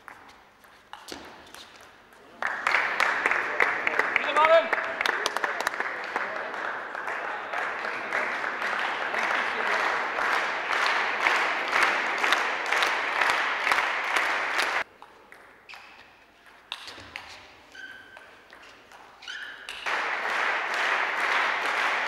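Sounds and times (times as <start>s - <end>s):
spectators applauding: 2.4s - 14.9s, 19.8s - 22.0s.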